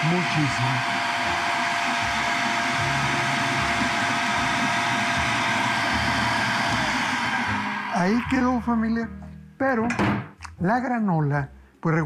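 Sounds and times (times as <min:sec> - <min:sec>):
food processor running: 0:00.0 - 0:08.3.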